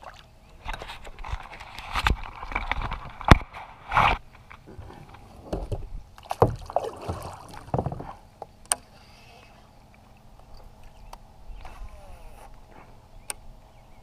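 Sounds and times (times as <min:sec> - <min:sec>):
water sloshing: 0:00.0 - 0:11.0
paddle knocking against kayak hull: 0:04.7 - 0:08.2.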